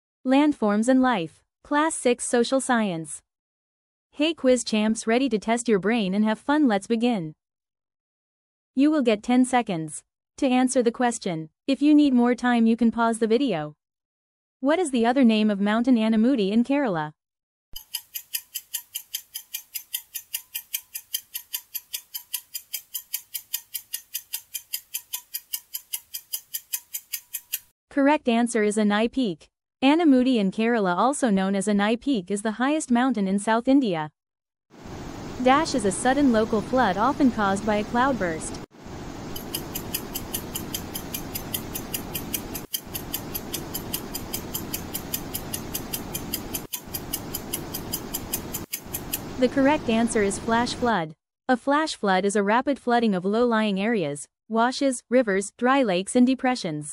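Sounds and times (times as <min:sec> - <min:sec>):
countdown timer ticking: 0:17.8 - 0:27.7, 0:39.4 - 0:49.4.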